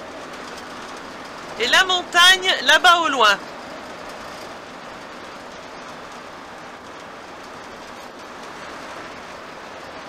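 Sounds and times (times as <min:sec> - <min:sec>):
road noise inside vehicle: 0:00.0 - 0:10.0.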